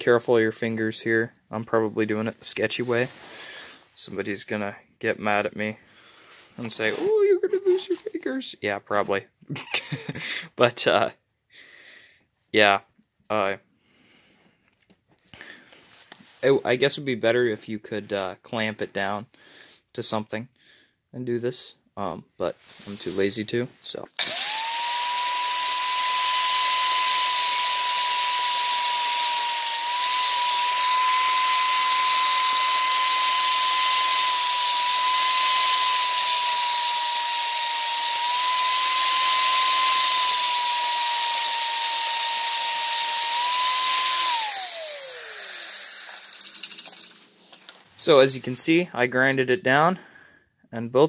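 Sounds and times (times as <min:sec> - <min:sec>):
angle grinder whining: 0:24.2 - 0:47.2
grinder spinning down: 0:24.2 - 0:47.2.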